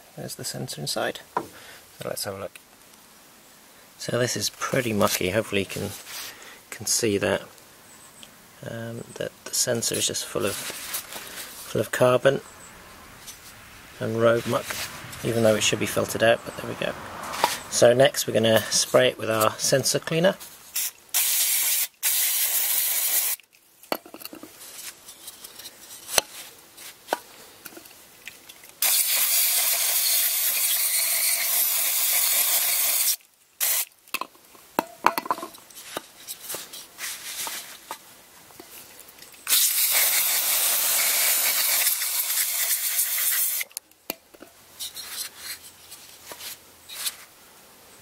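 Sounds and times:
aerosol can spraying: 20.8 - 23.4, 28.8 - 33.9, 39.5 - 43.7.

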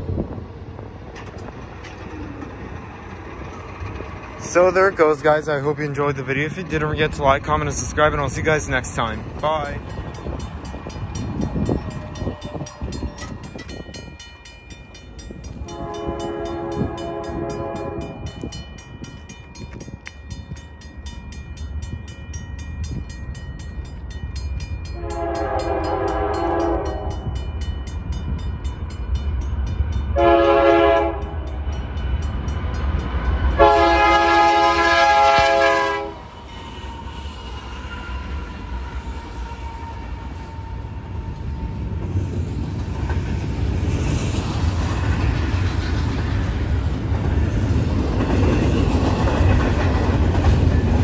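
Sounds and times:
diesel locomotive rumble: 0.0 - 51.0
crossing gate bells ringing: 4.4 - 34.2
locomotive horn blasts: 15.6 - 18.2, 25.0 - 27.3, 30.2 - 31.4, 33.6 - 36.3.

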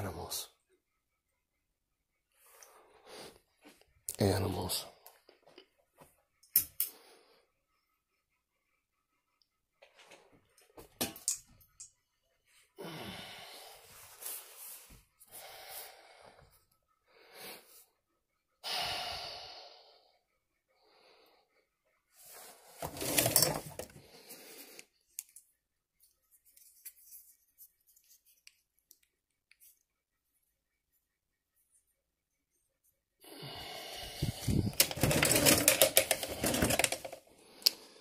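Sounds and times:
person breathing heavily: 12.7 - 18.0, 18.6 - 22.4, 33.2 - 38.0.

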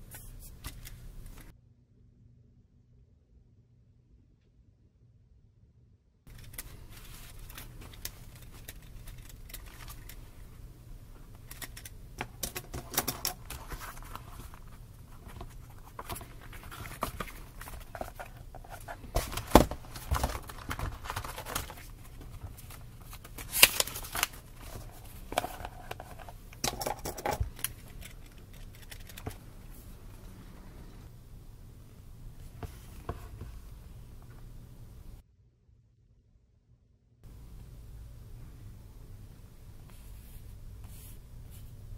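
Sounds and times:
notebook pages rustling: 6.3 - 30.0.

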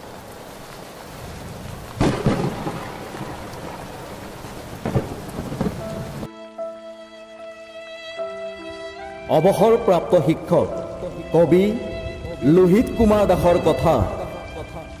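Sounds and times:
steady rain: 0.0 - 6.3, 8.4 - 15.0
thunder claps: 1.2 - 6.3
soft sustained music chords: 5.2 - 15.0.

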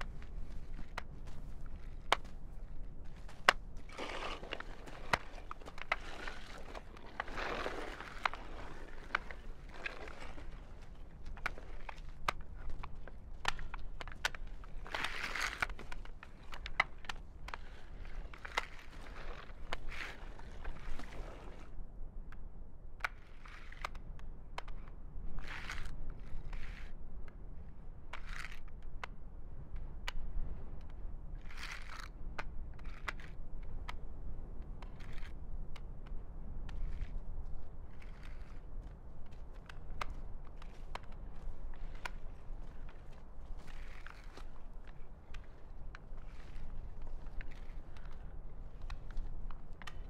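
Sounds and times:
body sliding over gravel: 0.0 - 21.7, 36.8 - 50.0
gravel scuffing underfoot: 0.0 - 21.7, 36.6 - 50.0
low wind rumble: 0.0 - 23.4.

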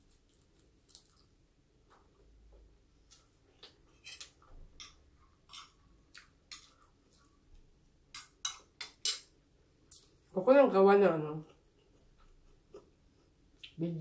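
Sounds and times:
chewing: 0.0 - 2.2, 5.5 - 7.4.

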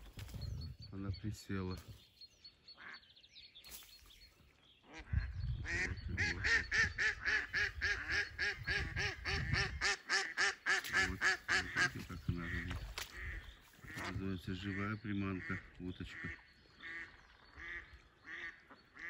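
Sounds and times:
duck quacking rapidly: 5.7 - 14.1.

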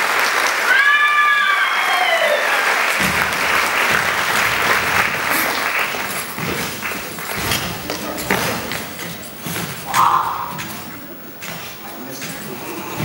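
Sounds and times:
audience applauding: 0.0 - 8.8
low irregular thuds: 3.0 - 11.8.

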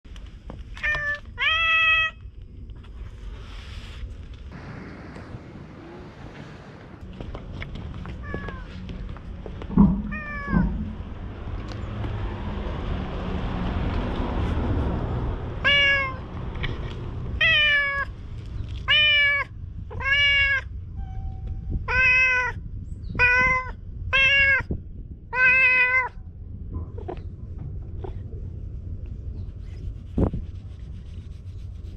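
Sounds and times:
cat meowing: 0.8 - 2.2, 8.2 - 8.7, 10.0 - 11.0, 15.6 - 16.2, 17.4 - 18.1, 18.8 - 22.6, 23.2 - 24.7, 25.3 - 26.2
steady rushing noise: 4.1 - 15.6.

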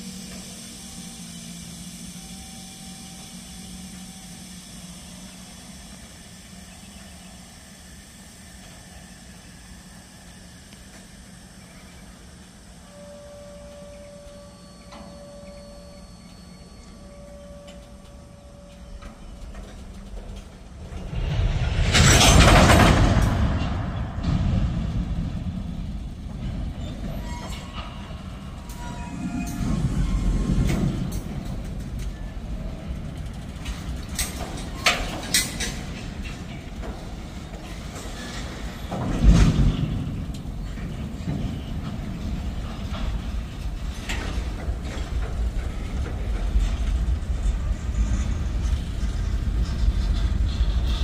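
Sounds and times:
train wheels rumbling on rails: 0.0 - 51.0
faint wheel squeals: 11.4 - 20.4, 26.7 - 33.0
boxcar clanks: 17.1 - 51.0.

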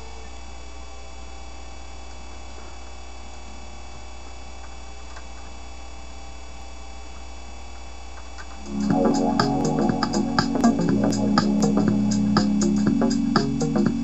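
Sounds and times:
low hum: 8.6 - 14.0.

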